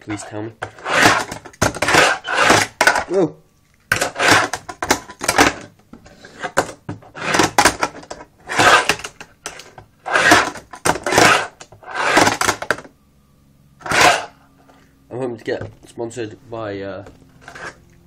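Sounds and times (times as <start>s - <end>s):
fingerboard rolling on metal ramp: 0.7s - 2.9s, 4.0s - 5.4s, 6.4s - 12.7s, 13.8s - 14.3s.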